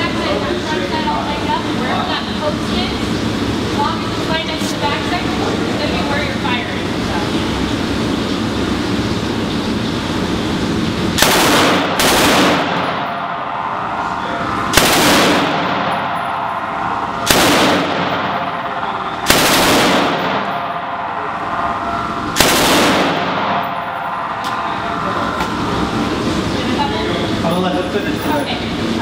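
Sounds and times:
steady background noise: 0.0 - 29.0
machine gun automatic bursts: 11.2 - 12.8, 19.3 - 20.5, 22.4 - 23.3.

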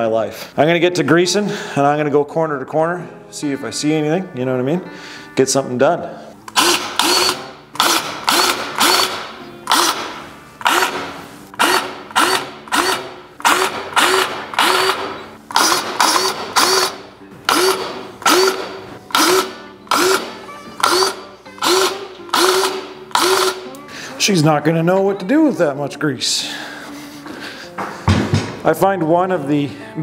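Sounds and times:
grease gun motor whirring: 6.5 - 23.6.

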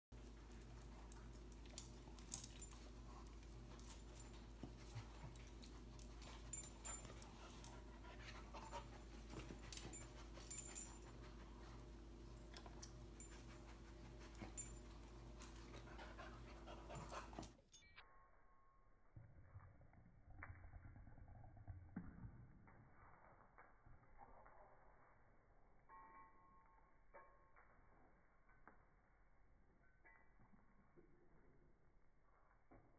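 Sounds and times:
dog panting: 3.9 - 11.9, 15.8 - 17.6.

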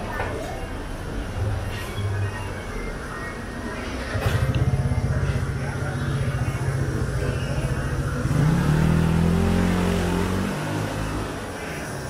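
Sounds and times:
street noise: 0.0 - 12.0
vehicle engine revving: 4.0 - 11.9.

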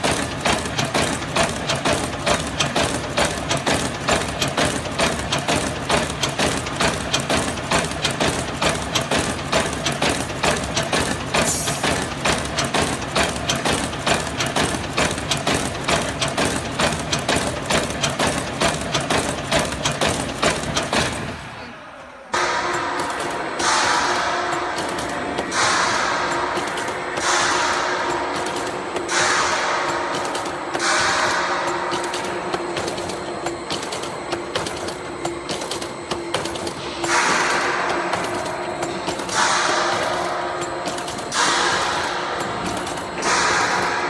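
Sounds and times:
wire mesh machine clattering: 22.9 - 44.0.

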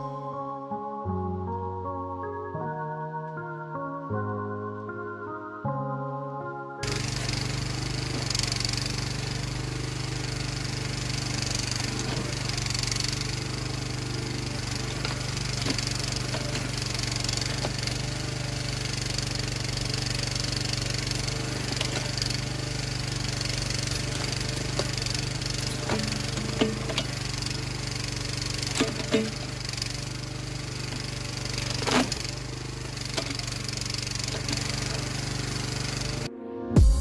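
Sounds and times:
backhoe engine running: 6.8 - 37.0
clicks and knocks: 28.7 - 29.7.

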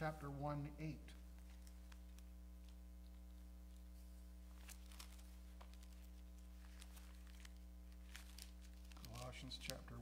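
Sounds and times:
low electrical hum: 0.0 - 10.0
thin pages rustling: 1.3 - 9.9.

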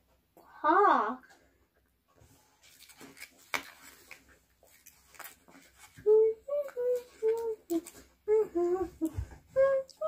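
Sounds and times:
sweet wrapper crinkling: 2.4 - 9.2
child humming: 6.0 - 10.0.

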